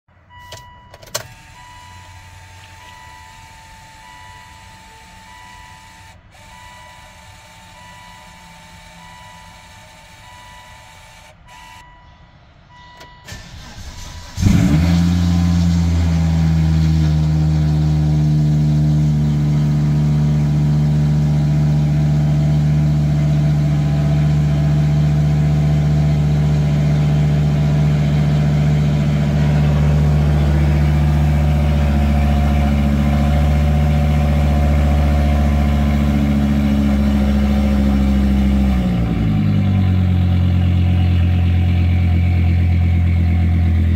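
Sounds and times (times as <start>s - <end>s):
car warning chimes: 0.1s - 14.4s
car engine starting and idling: 0.1s - 43.9s.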